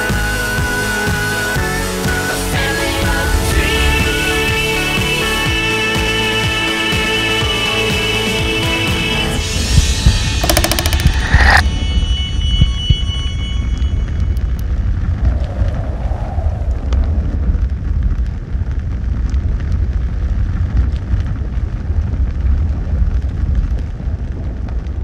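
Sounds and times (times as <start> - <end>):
low rumbling noise: 9.4 - 25.0.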